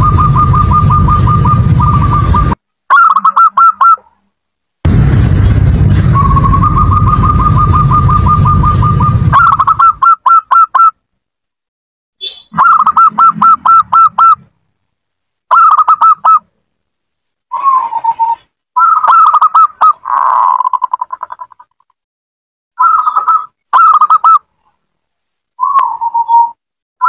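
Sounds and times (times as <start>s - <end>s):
loud low rumble: 0.0s - 2.6s, 4.8s - 9.8s
dove cooing in staccato notes: 6.4s - 10.6s.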